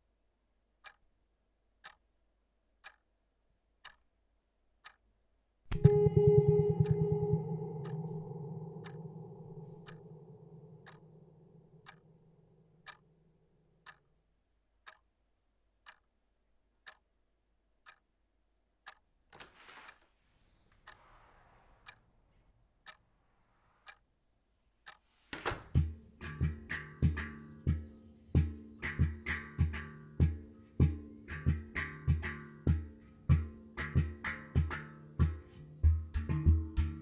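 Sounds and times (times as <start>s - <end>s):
clock ticking: 0.7s - 22.1s, 22.7s - 37.0s
low held tone: 5.7s - 12.8s.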